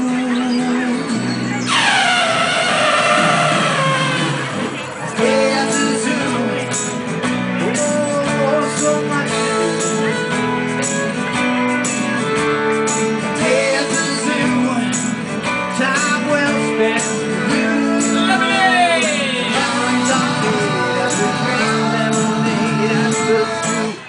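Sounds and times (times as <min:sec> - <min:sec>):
strummed acoustic guitar: 0:00.1 - 0:24.0.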